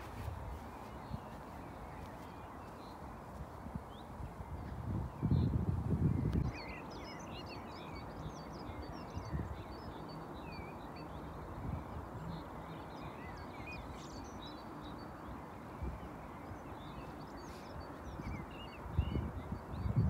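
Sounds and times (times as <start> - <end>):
small birds chirping: 0.0 - 20.0
wind thumps on microphone: 4.5 - 6.6.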